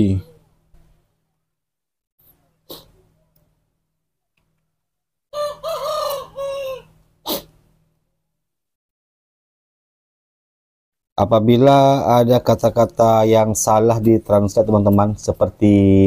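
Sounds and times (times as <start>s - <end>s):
short sharp puff of noise: 2.7s - 3.0s, 7.2s - 7.6s
rooster crowing: 5.3s - 7.0s.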